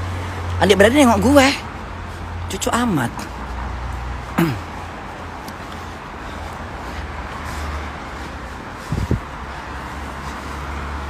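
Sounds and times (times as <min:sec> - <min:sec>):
road traffic hiss: 0:00.0 - 0:11.0
wind rumble on microphone: 0:08.6 - 0:09.5.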